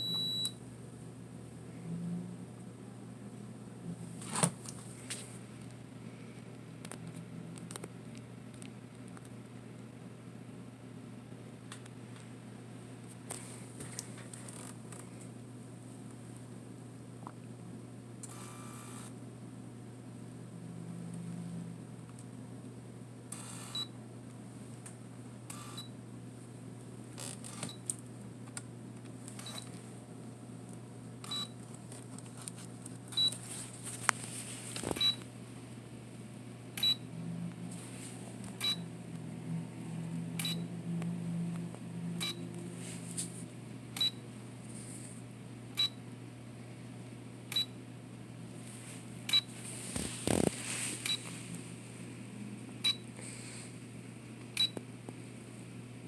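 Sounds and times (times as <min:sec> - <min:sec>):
lens motor whirring: 0:18.2 - 0:19.2, 0:23.3 - 0:23.9, 0:25.5 - 0:25.9, 0:27.2 - 0:27.8
camera beeping and clicking: 0:23.3 - 0:23.9, 0:25.5 - 0:25.9, 0:27.4 - 0:27.8.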